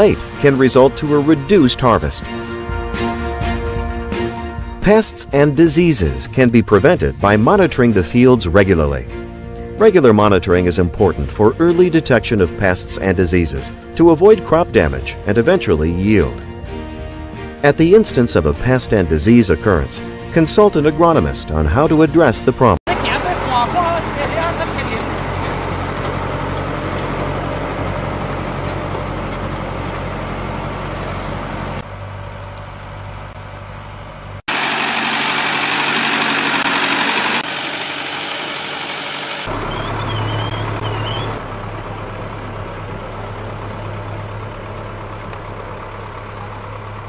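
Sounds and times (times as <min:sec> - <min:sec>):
tractor engine running: 0:00.0 - 0:22.0, 0:22.6 - 0:47.0
chirps: 0:28.5 - 0:34.4, 0:39.5 - 0:41.4.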